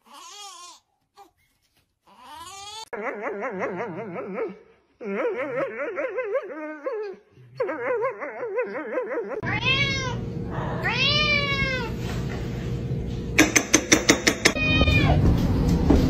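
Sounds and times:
cat meowing: 0:09.4 - 0:11.9, 0:14.5 - 0:15.2.

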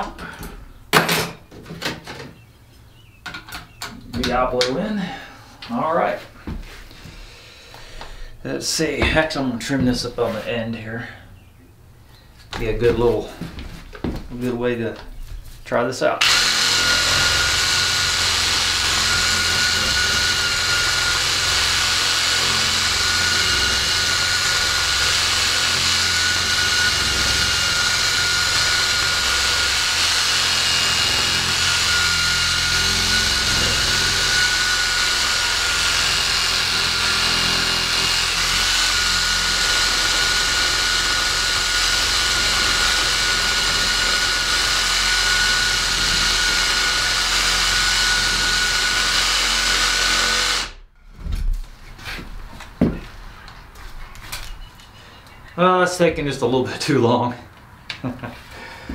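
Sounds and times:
reciprocating saw cutting wood: 0:16.2 - 0:50.8.

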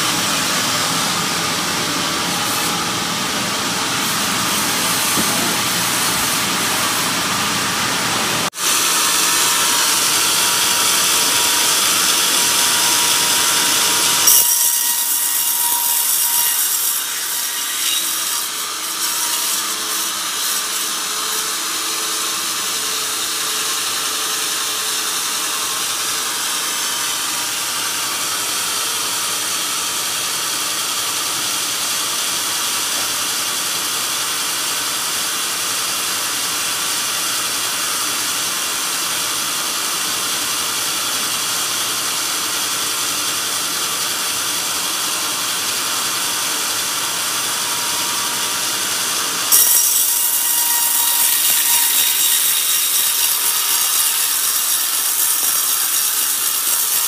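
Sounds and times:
band saw cutting log: 0:00.0 - 0:57.0.

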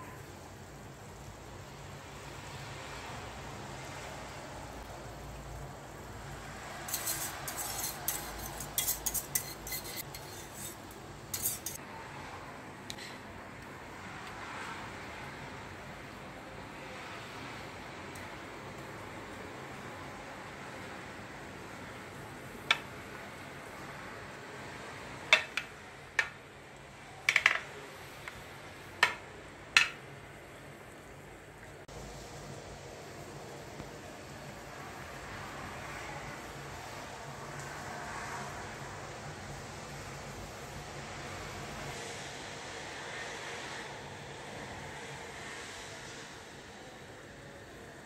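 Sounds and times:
metal server clinking on dish: 0:06.9 - 0:11.8
wire whisk scraping a saucepan: 0:06.9 - 0:11.8.

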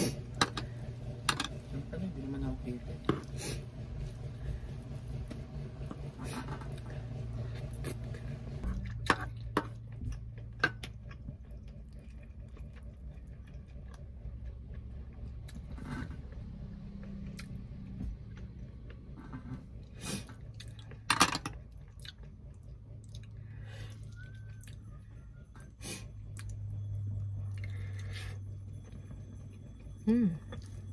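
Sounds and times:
low steady hum: 0:00.0 - 0:30.9
close-up chewing: 0:06.7 - 0:21.0, 0:21.6 - 0:25.2.

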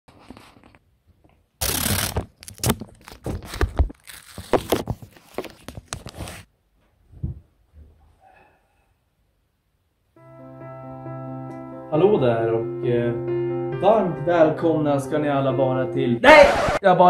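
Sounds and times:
paper rustling and crinkling: 0:01.6 - 0:06.5.

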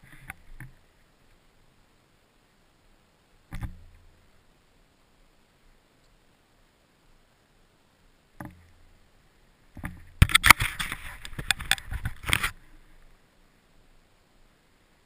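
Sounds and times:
snowmobile knocking and rattling: 0:09.8 - 0:12.6.

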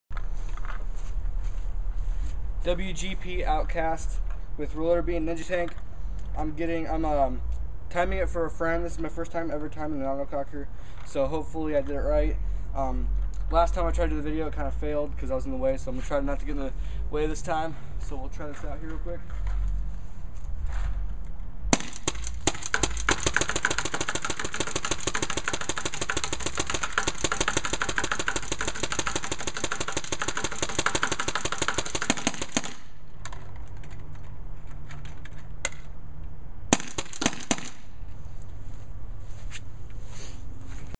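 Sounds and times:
paintball marker firing shots: 0:21.7 - 0:33.5, 0:36.7 - 0:38.0.

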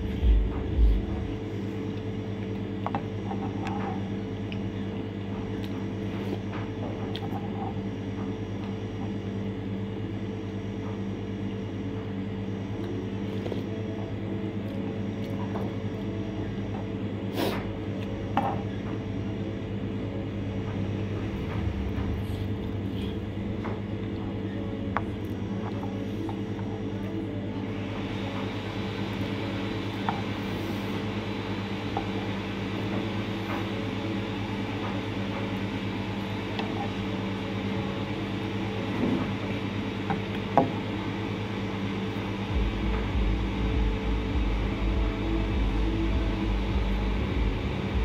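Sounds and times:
deep rumble: 0:00.0 - 0:01.6, 0:20.5 - 0:25.1, 0:42.5 - 0:48.0
fan humming: 0:00.0 - 0:48.0.

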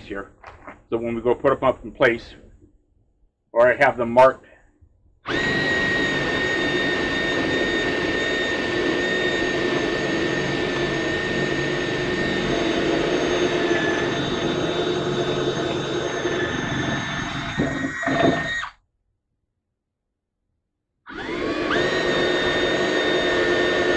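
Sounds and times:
power drill boring into wood: 0:05.3 - 0:18.8, 0:21.1 - 0:23.9.

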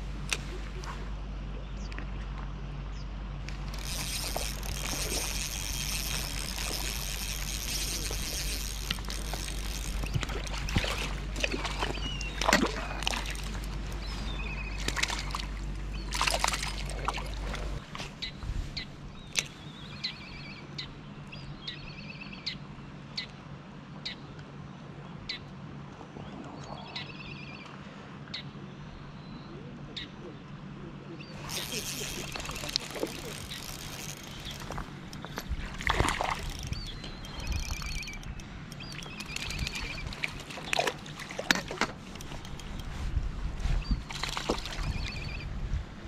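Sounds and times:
steady low hum: 0:00.0 - 0:22.0
water splashing and sloshing: 0:03.5 - 0:18.8, 0:31.4 - 0:45.4.

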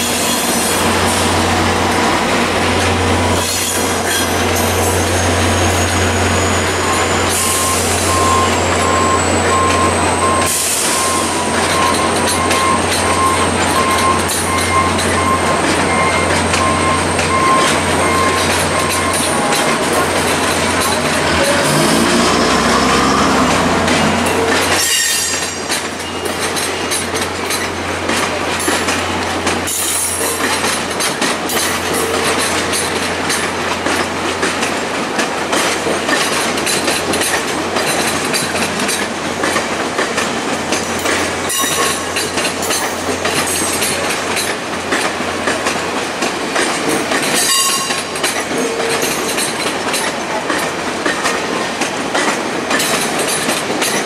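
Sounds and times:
train wheel squeals: 0:00.0 - 0:27.8, 0:41.0 - 0:44.6, 0:47.0 - 0:51.7
train wheels clattering over rail joints: 0:00.0 - 0:54.0.

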